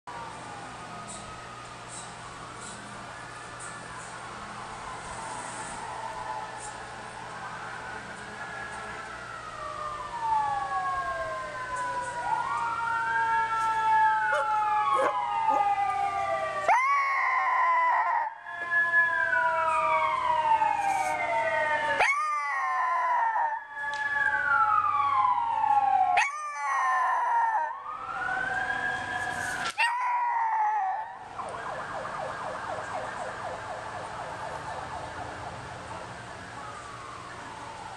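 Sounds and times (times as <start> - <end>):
emergency sirens wailing: 0.1 - 37.9
dog howling: 14.3 - 15.9, 16.6 - 18.3, 22.0 - 23.6, 26.2 - 27.8, 29.7 - 31.2.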